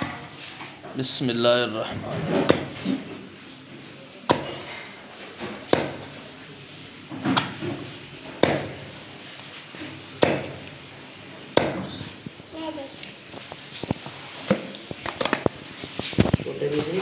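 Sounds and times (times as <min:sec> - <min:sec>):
cleaver chopping on wooden block: 0:08.4 - 0:08.7.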